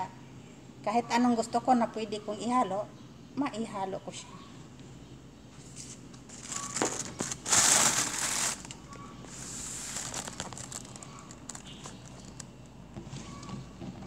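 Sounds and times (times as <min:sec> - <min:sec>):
soft rustling: 0:05.6 - 0:13.3
plastic bag crinkling: 0:06.3 - 0:12.6.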